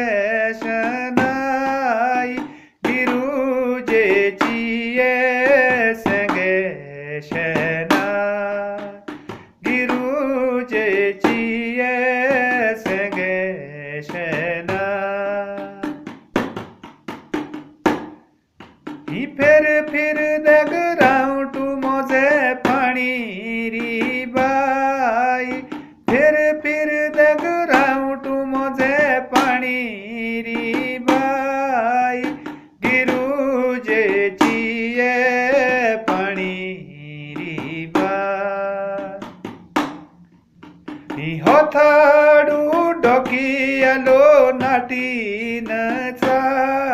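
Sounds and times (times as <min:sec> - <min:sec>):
drum strokes: 0:00.0 - 0:06.6, 0:07.3 - 0:13.4, 0:14.0 - 0:36.7, 0:37.3 - 0:38.4, 0:39.0 - 0:46.9
man singing slow melody: 0:00.0 - 0:16.1, 0:19.0 - 0:39.5, 0:40.1 - 0:46.9.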